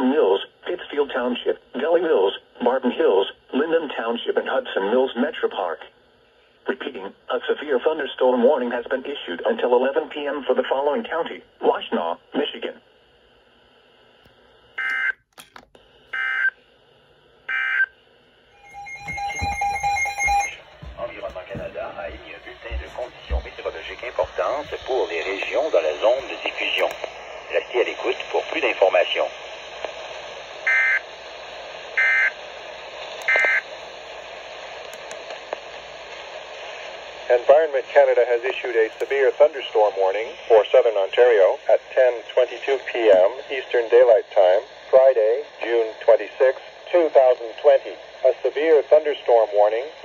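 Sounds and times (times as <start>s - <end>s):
radio hiss: 0.0s - 13.0s, 20.8s - 50.0s
screechy data tones: 18.6s - 24.6s.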